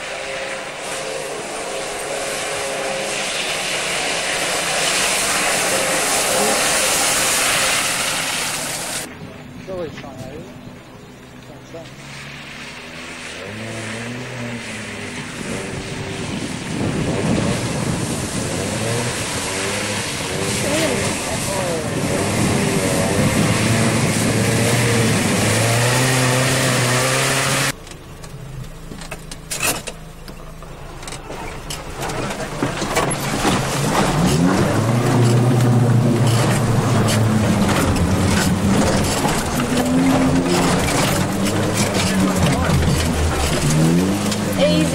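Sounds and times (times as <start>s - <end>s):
mud and water splashing: 0.0s - 27.8s, 30.7s - 44.9s
vehicle engine running: 9.0s - 44.9s.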